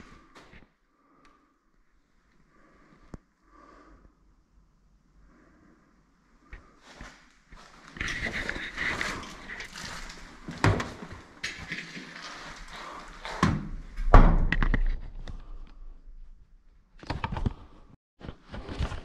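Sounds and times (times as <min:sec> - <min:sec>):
rustling and scraping: 0:06.4 - 0:13.4.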